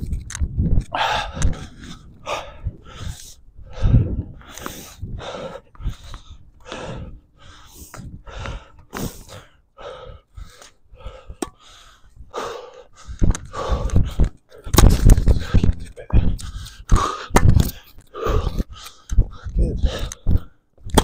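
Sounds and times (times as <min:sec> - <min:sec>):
person breathing hard: 0:00.9 - 0:14.7, 0:15.3 - 0:20.8.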